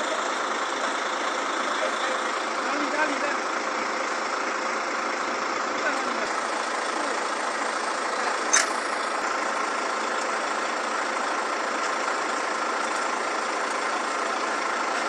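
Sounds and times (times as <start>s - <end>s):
truck engine running: 0.0s - 15.0s
metal ladder clank: 8.5s - 9.0s.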